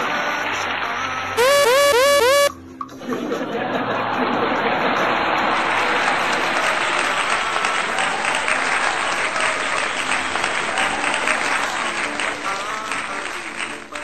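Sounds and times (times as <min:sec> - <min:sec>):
crowd clapping: 0:05.4 - 0:14.0.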